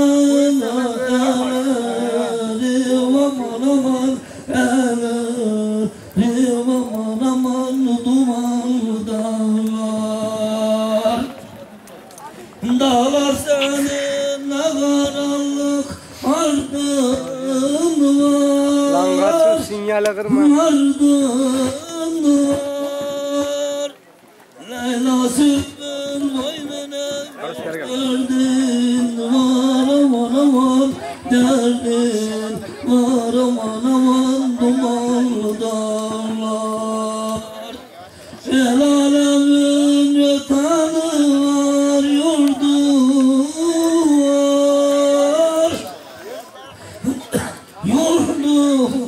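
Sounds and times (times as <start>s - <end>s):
man singing into microphone: 0.0s - 11.6s, 12.6s - 49.0s.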